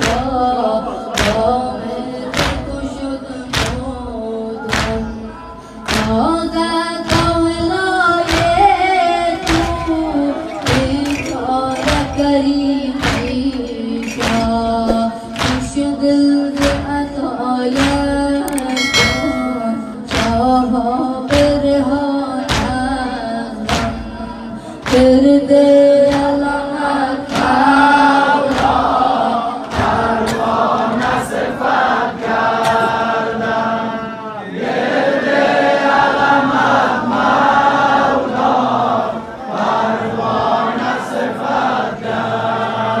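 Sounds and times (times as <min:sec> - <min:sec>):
rhythmic chest-beating: 0:00.0 - 0:33.9
group of voices chanting: 0:26.9 - 0:43.0.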